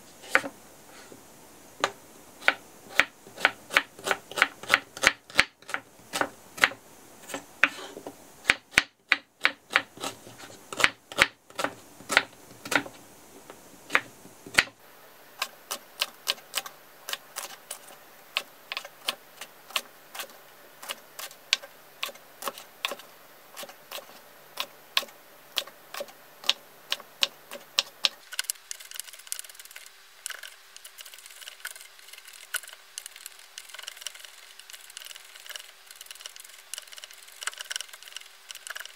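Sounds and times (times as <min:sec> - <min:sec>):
knife chopping on wooden board: 0:01.8 - 0:13.0, 0:13.9 - 0:14.7.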